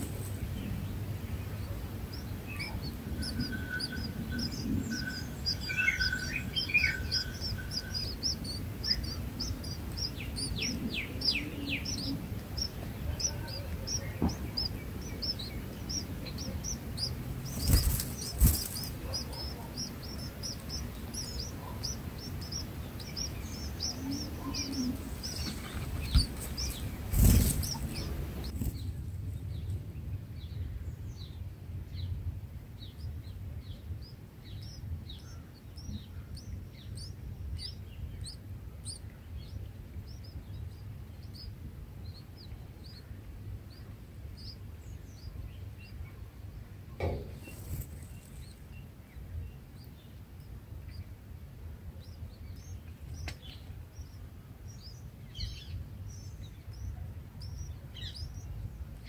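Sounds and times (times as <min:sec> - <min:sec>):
nestlings chirping: 0:00.0 - 0:29.8, 0:32.8 - 0:59.0
wing flapping: 0:17.3 - 0:19.4, 0:24.4 - 0:28.8.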